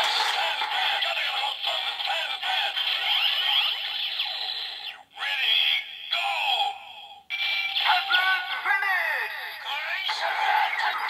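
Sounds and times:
toy electronic sound effects: 2.9 - 4.9.

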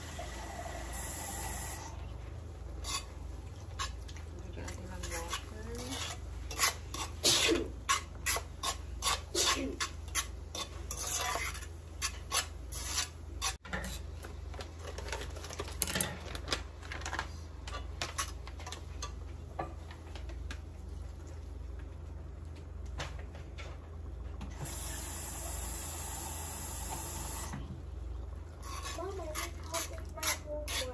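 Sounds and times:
metal spoon scraping skillet: 2.8 - 14.1, 28.5 - 30.9.

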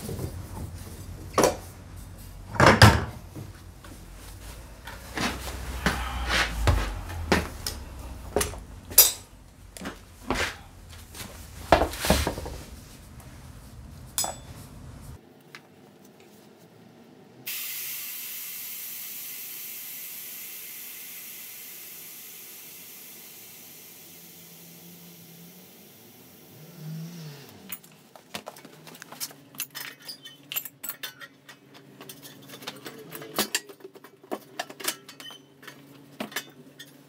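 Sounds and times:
air hissing from tyre: 3.7 - 14.2, 17.5 - 27.5
metal tools clinking: 8.4 - 11.2, 14.1 - 15.1, 29.2 - 37.0.

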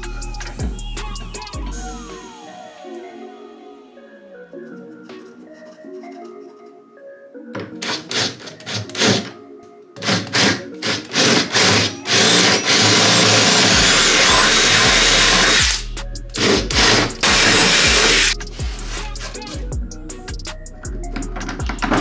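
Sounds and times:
drill boring into wood: 10.0 - 15.8, 16.4 - 18.4.

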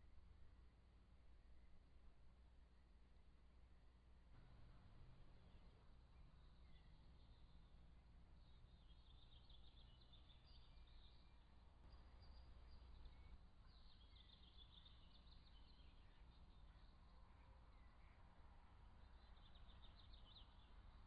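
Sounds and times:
low steady hum: 0.0 - 21.0
songbird trills: 8.4 - 18.3.

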